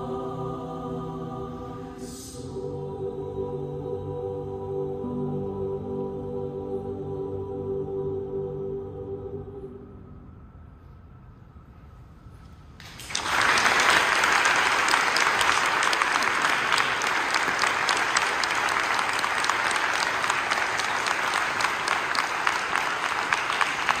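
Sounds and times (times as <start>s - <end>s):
audience applause: 12.8s - 24.0s.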